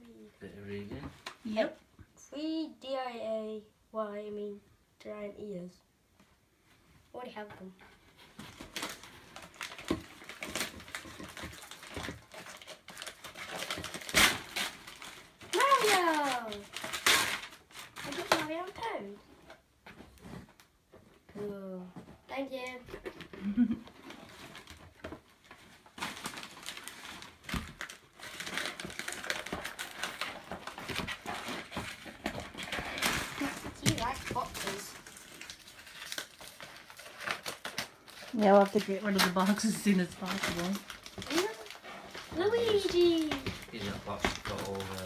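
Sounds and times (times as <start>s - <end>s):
wrapping paper tearing and crinkling: 8.0s - 19.2s, 23.9s - 45.0s.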